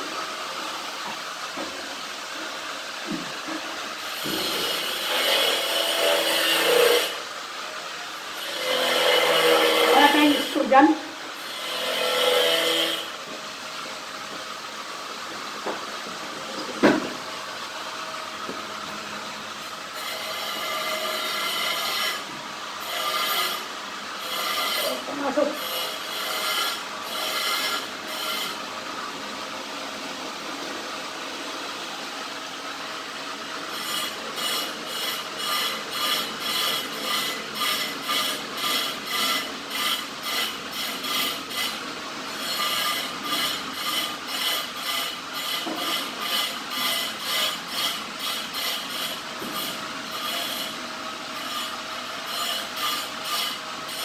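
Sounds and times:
hand tool scraping: 0:04.0 - 0:07.2, 0:08.4 - 0:10.8, 0:11.4 - 0:13.1, 0:19.6 - 0:28.6, 0:33.7 - 0:41.8, 0:42.4 - 0:50.8, 0:51.4 - 0:54.0.

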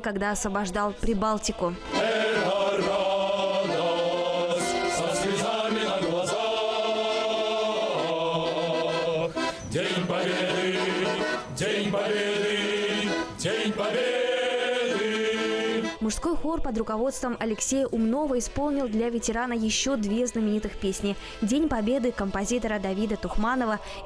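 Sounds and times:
accordion: 0:00.0 - 0:24.0
men's choir singing: 0:01.8 - 0:16.0.

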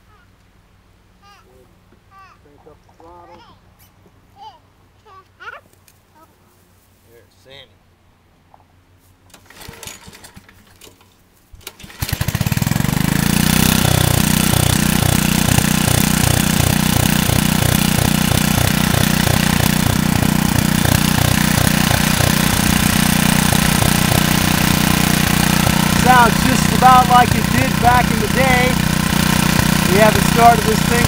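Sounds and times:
tiller engine running: 0:09.3 - 0:10.8, 0:11.6 - 0:31.0.

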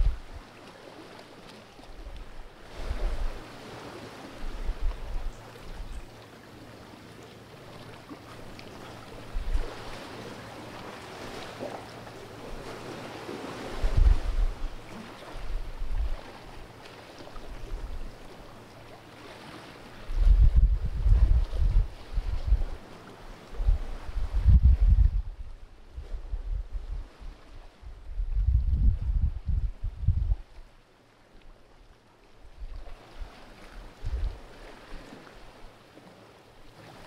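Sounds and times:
wind buffeting microphone: 0:00.0 - 0:00.4, 0:04.4 - 0:06.0, 0:09.2 - 0:10.0, 0:13.7 - 0:16.2, 0:20.0 - 0:22.8, 0:23.5 - 0:30.6, 0:33.8 - 0:34.5
sea lapping among rocks: 0:00.0 - 0:25.2, 0:30.3 - 0:37.0.

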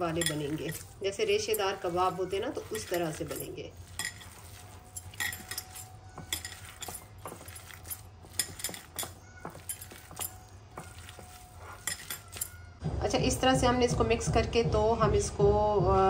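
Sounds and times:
metal bangles clinking: 0:00.0 - 0:12.6
hands kneading mixture: 0:00.0 - 0:12.8.

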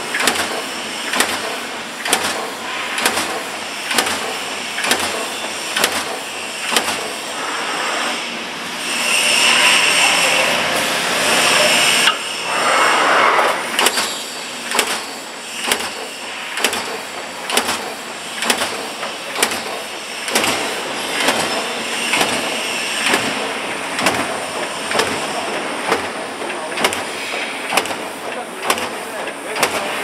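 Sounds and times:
machine running noise: 0:00.0 - 0:30.0
sharp mechanical clack: 0:00.1 - 0:07.2, 0:13.7 - 0:24.3, 0:24.9 - 0:30.0
rush of air: 0:12.4 - 0:13.8.

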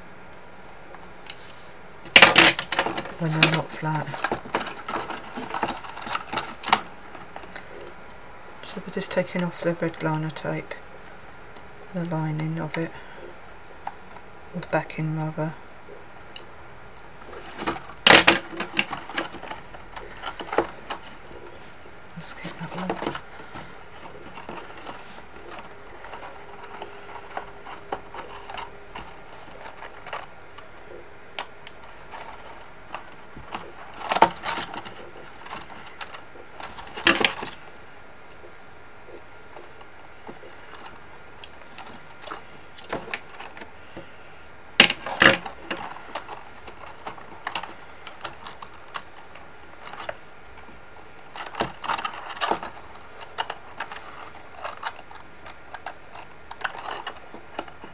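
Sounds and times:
card stock rustling: 0:01.0 - 0:08.0, 0:17.0 - 0:37.8, 0:39.1 - 0:57.9.

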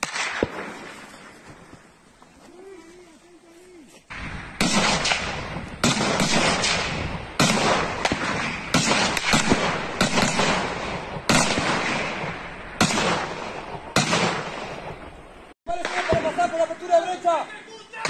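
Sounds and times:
faint distant gunshots: 0:00.0 - 0:01.3, 0:04.1 - 0:16.7
rifle shots echoing: 0:00.0 - 0:01.4, 0:04.1 - 0:16.8.

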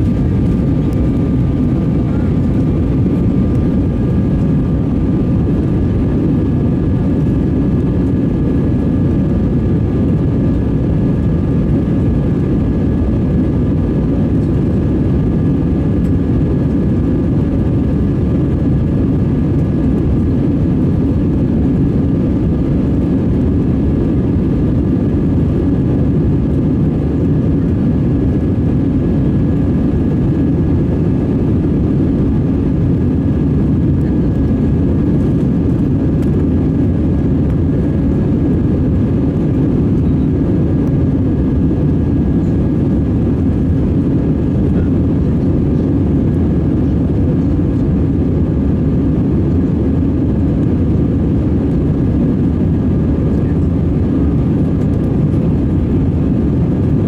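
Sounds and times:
air rushing over fuselage: 0:00.0 - 0:12.5
jet engines rumbling: 0:00.0 - 0:57.0.

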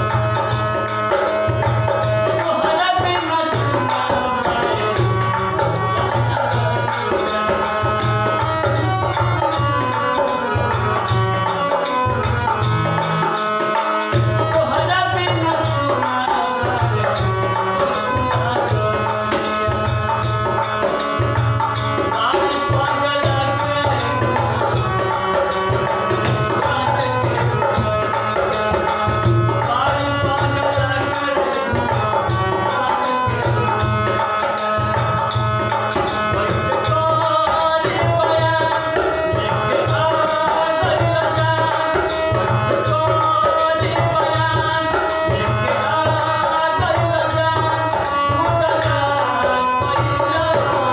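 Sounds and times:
hand-drum beat: 0:00.0 - 0:32.9
harmonium melody: 0:00.0 - 0:50.9
small hand percussion: 0:00.0 - 0:50.9.

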